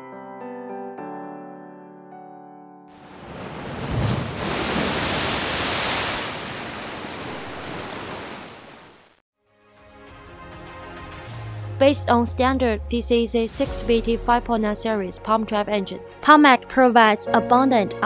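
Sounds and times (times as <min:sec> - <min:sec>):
background music: 0:09.4 - 0:18.0.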